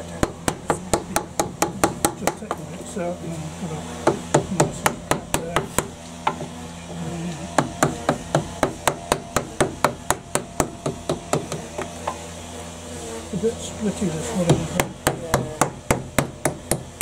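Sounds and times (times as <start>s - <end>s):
mallet striking chisel: 7.6s - 11.9s, 14.5s - 17.0s.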